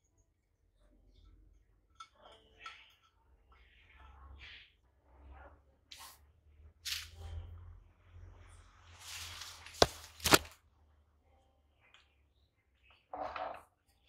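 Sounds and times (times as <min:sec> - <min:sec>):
wire rustling scrapes: 0:08.9 - 0:10.6.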